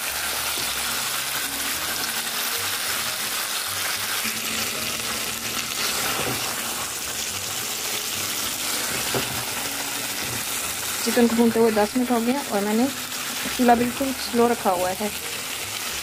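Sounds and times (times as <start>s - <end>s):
chicken sizzling in frying pan: 0.0s - 16.0s.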